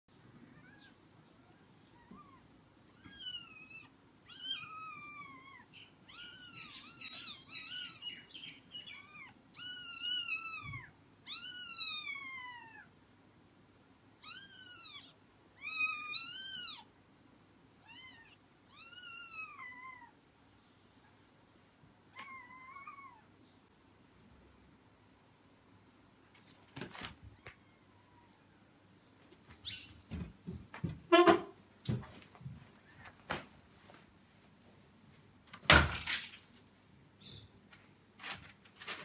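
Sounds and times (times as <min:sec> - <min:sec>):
kittens mewing: 0:00.5 - 0:13.0, 0:14.2 - 0:16.9, 0:17.8 - 0:20.2, 0:22.1 - 0:23.3.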